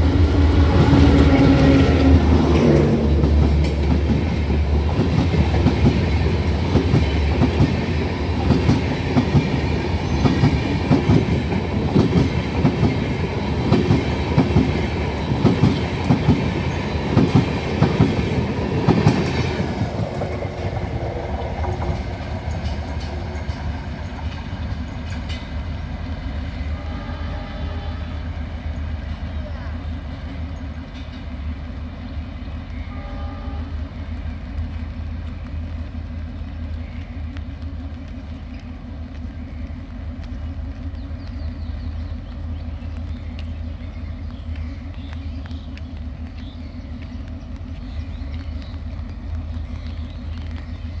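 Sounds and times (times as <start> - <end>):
diesel locomotive engine idling: 0.0 - 51.0
passenger train rumbling: 0.0 - 51.0
small birds chirping: 36.4 - 51.0.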